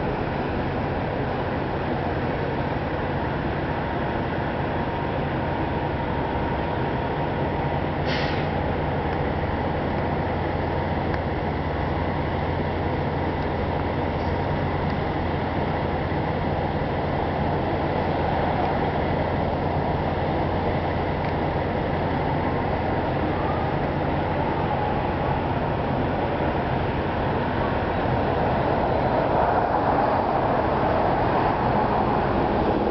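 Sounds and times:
constant rushing noise: 8.6s - 32.9s.

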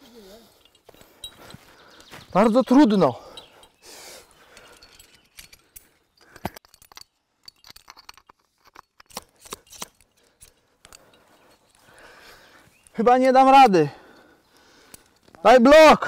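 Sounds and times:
climbing gear clinking: 0.0s - 16.0s
metal nut clicking in rock crack: 4.4s - 11.2s.

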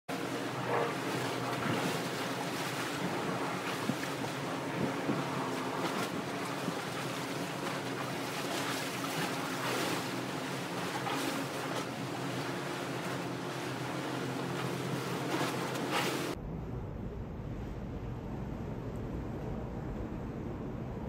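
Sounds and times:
river water lapping: 0.1s - 16.4s
boat engine drone: 0.1s - 21.0s
wind on microphone: 0.2s - 13.2s.

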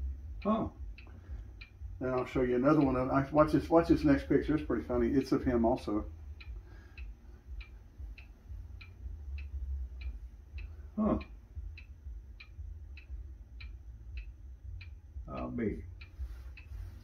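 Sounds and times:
clock ticking: 0.0s - 17.0s
low room hum: 0.0s - 17.0s
man's voice: 2.0s - 6.1s.

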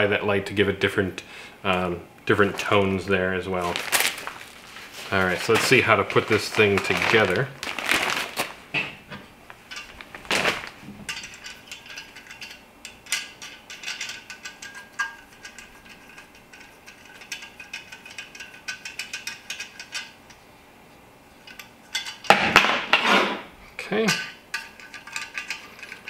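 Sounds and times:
scraping rustle: 3.5s - 8.7s
small parts clicking and rattling: 9.5s - 20.4s, 24.1s - 26.0s.

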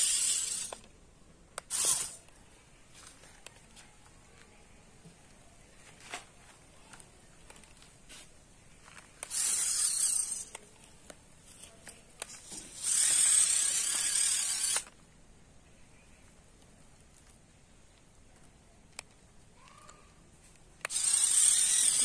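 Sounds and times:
robot hissing and scraping: 0.0s - 0.8s, 1.7s - 2.2s, 9.2s - 10.6s, 12.4s - 14.9s, 20.9s - 22.0s.

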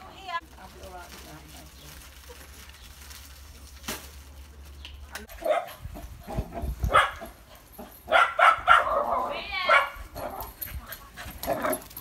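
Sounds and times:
puppies yapping and barking: 5.3s - 12.0s.

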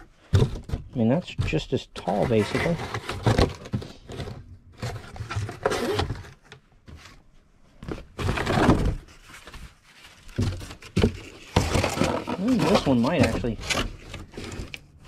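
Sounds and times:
dull thunks of boxes: 0.2s - 4.4s
cardboard boxes scraping and rustling: 0.2s - 7.2s, 7.8s - 15.0s.

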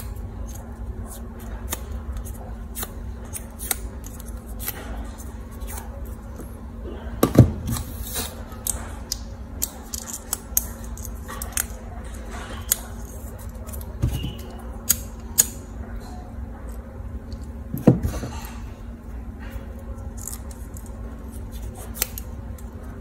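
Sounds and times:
scissors snipping plastic straw: 1.5s - 4.8s, 21.5s - 22.7s.

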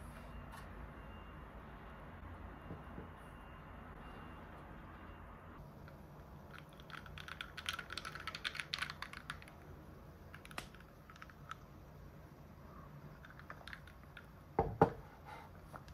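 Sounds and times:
ice clicking and crackling in glass: 6.4s - 9.6s.

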